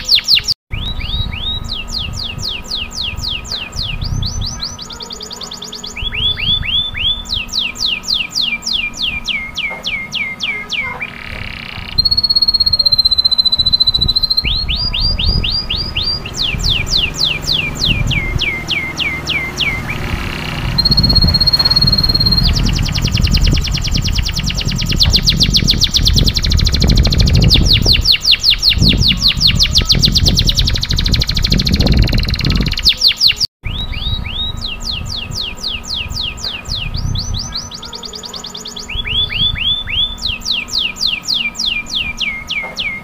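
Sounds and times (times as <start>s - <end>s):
canary singing trills: 0.0s - 43.0s
low rumble: 11.8s - 32.7s.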